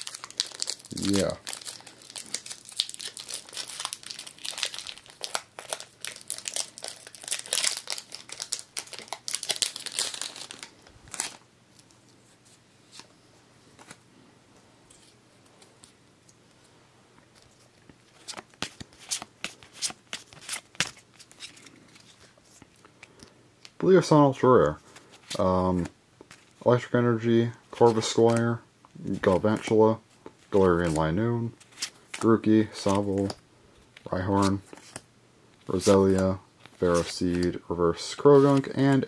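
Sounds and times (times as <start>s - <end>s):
foil wrapper crinkling and tearing: 0.0s - 11.4s
cards being handled: 17.3s - 23.8s, 27.7s - 35.0s, 35.6s - 39.0s.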